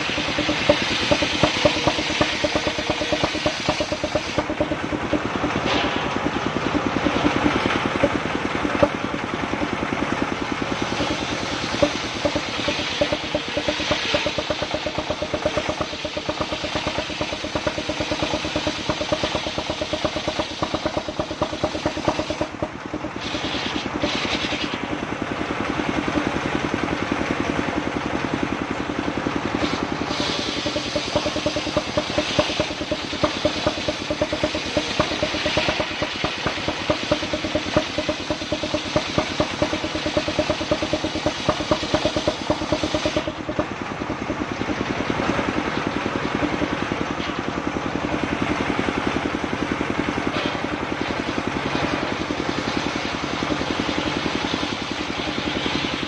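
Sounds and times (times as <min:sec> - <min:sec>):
engine chugging: 0:00.0 - 0:56.0
saw blade hissing through log: 0:29.6 - 0:43.3.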